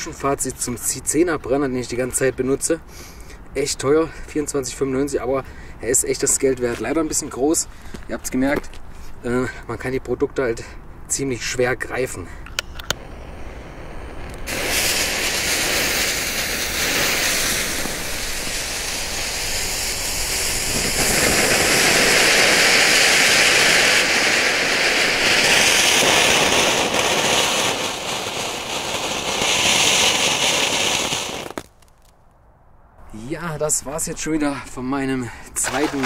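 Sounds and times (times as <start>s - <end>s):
fountain fireworks hissing and crackling: 12.8s - 31.8s, 35.6s - 36.0s.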